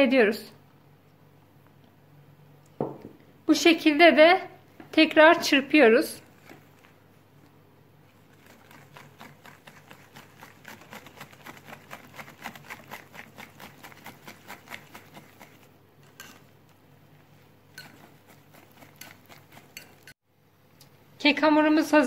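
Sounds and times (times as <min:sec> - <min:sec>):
whisk beating batter in glass bowl: 0:08.1 - 0:20.2.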